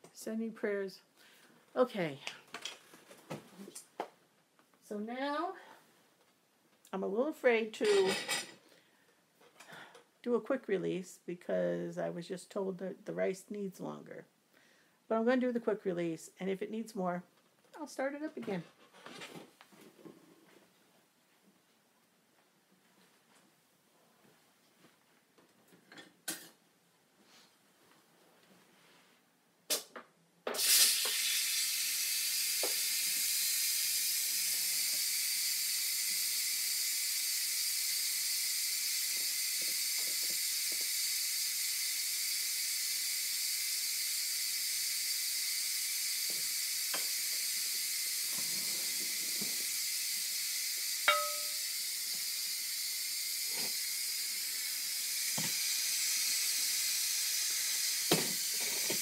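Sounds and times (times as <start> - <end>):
pressure cooker steam hissing: 30.5 - 59.0.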